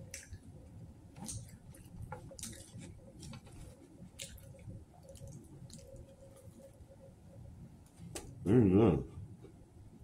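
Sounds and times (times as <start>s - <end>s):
chewing pizza: 0.0s - 6.8s.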